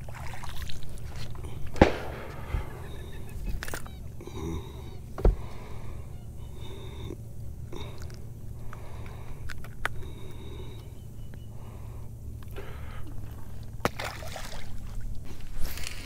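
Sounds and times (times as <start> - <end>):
steady low rumble: 0.0 - 16.0
lure splash on water: 13.8 - 14.9.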